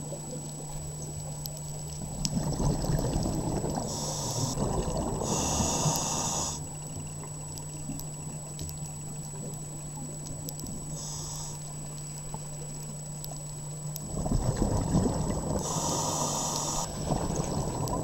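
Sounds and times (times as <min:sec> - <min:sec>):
gurgling exhaled bubbles underwater: 0:02.0 - 0:07.2, 0:14.0 - 0:18.0
regulator hiss: 0:03.8 - 0:04.6, 0:05.2 - 0:06.8, 0:10.9 - 0:11.7, 0:15.6 - 0:17.0.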